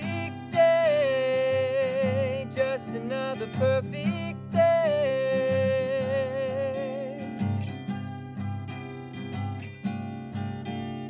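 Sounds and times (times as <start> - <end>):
man singing: 0.0 - 7.7
acoustic guitar strumming: 0.0 - 11.0.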